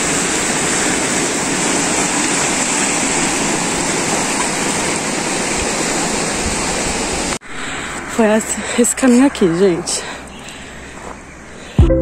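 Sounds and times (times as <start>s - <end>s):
ocean waves breaking on rocks: 0.0s - 7.4s.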